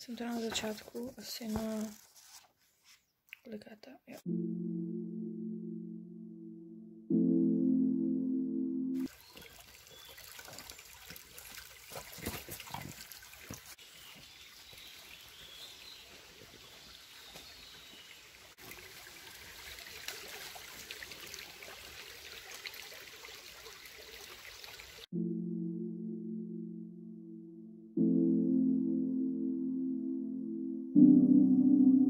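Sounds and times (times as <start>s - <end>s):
water splashes: 9.1s - 13.8s, 16.3s - 25.1s
stream trickling over stones: 9.1s - 25.1s.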